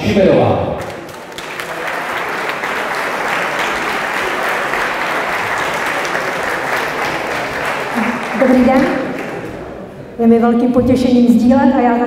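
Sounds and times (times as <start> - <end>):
audience applauding: 0.8 - 9.9.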